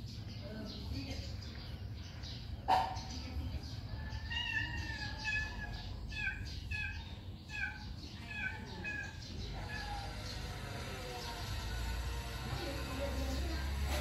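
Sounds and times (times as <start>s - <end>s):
baby monkey squeaking: 4.3s - 10.3s.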